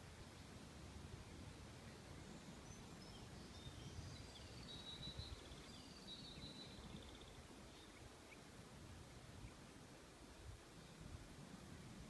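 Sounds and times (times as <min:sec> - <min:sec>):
songbird chirping and trilling: 0:01.2 - 0:08.5.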